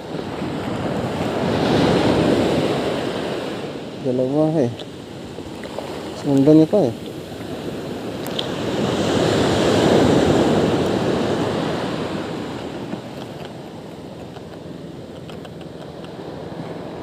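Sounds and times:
wave washing up beach: 0:00.0 - 0:14.8
steady wash of surf: 0:00.0 - 0:17.0.

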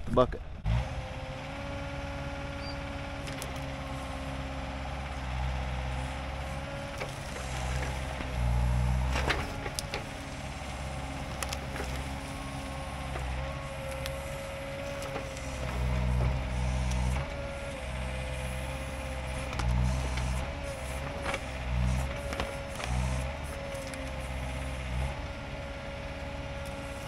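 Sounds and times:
excavator diesel engine running: 0:00.0 - 0:27.0
wood snapping: 0:03.2 - 0:03.8, 0:06.6 - 0:17.4, 0:18.6 - 0:24.6.

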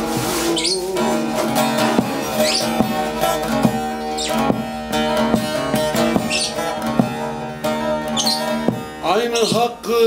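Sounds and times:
long-necked lute picked notes: 0:00.0 - 0:10.0
strings ringing: 0:01.0 - 0:10.0.

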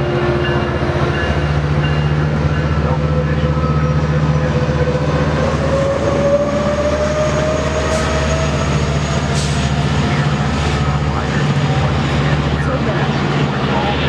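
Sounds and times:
locomotive engine drone: 0:00.0 - 0:14.0
train cars rushing by: 0:00.0 - 0:14.0.

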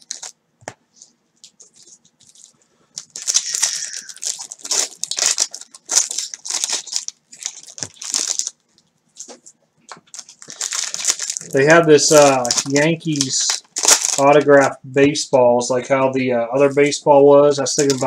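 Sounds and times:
foil wrappers crinkling and tearing: 0:00.0 - 0:00.4, 0:01.4 - 0:14.8, 0:17.6 - 0:18.0.

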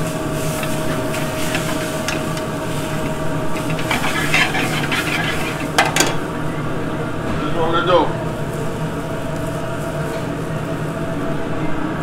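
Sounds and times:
meat sizzling in pan: 0:00.0 - 0:06.2
background hum: 0:00.0 - 0:12.0.

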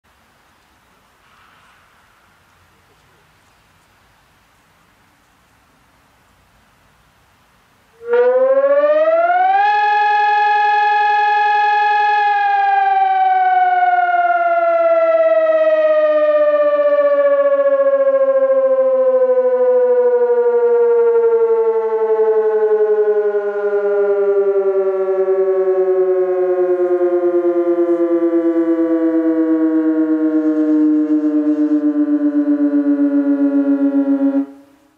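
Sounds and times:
electronic warning siren: 0:08.0 - 0:34.9.

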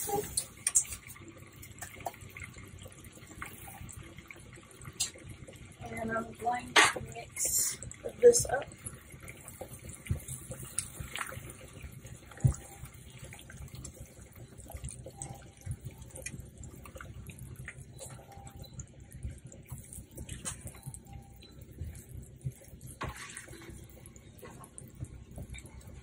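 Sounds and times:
spatula stirring liquid in pan: 0:17.7 - 0:26.0.

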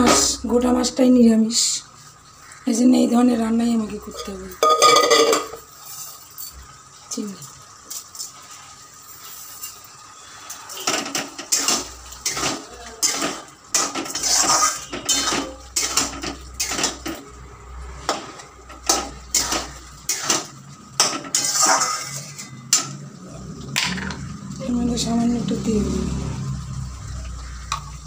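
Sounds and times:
metal spatula scraping pan: 0:10.7 - 0:17.2, 0:18.0 - 0:22.8.

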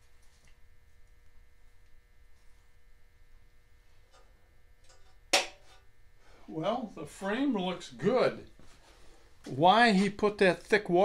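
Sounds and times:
faint electrical hum: 0:00.0 - 0:11.0
sharp knock: 0:05.3 - 0:05.6.

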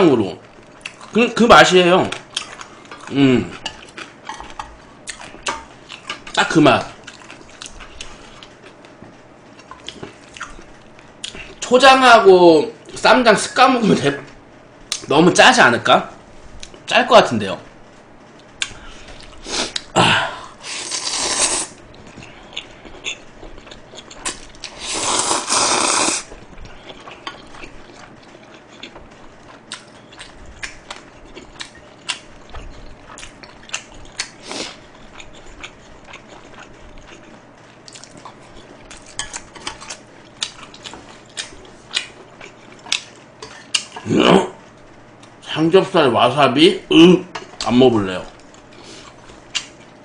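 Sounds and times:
chewing: 0:00.4 - 0:01.2, 0:02.0 - 0:11.6, 0:18.4 - 0:20.0, 0:20.8 - 0:44.1, 0:47.3 - 0:50.0
loud noodle slurps: 0:20.6 - 0:21.8, 0:24.7 - 0:26.3.

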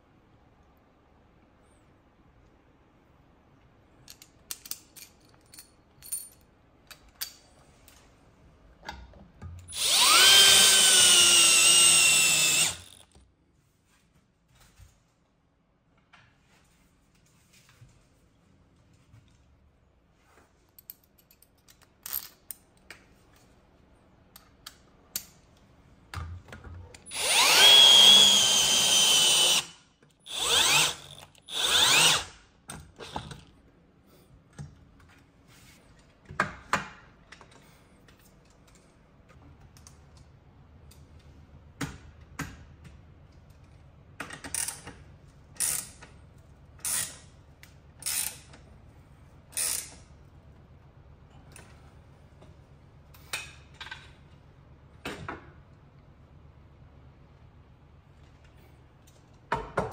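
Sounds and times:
power drill spinning: 0:09.7 - 0:13.2, 0:27.0 - 0:32.4.

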